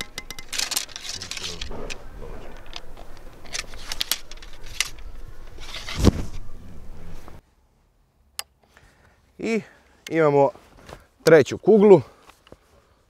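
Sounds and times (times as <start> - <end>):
ramrod scraping in rifle barrel: 0.0 - 6.5.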